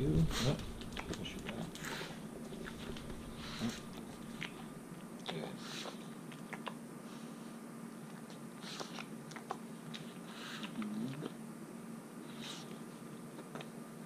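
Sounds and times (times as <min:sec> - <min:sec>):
dog snuffling: 0:00.0 - 0:04.7.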